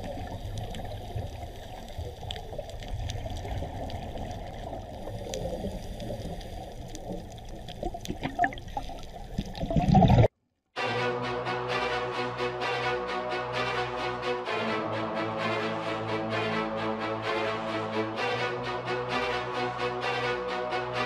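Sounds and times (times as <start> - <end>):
faint underwater clicks: 0.0 - 10.3
underwater watery rush: 0.0 - 10.3.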